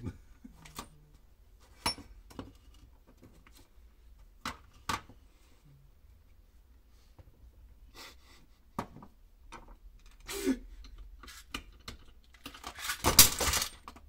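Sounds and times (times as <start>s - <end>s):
tools clicking and rubbing: 10.0s - 13.9s
tools clattering: 11.3s - 14.0s.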